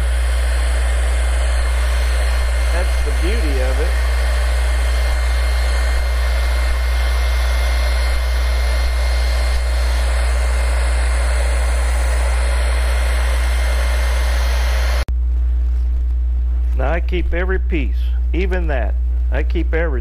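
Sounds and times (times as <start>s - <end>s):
hair dryer blowing: 0.0s - 15.1s
steady low hum: 0.0s - 20.0s.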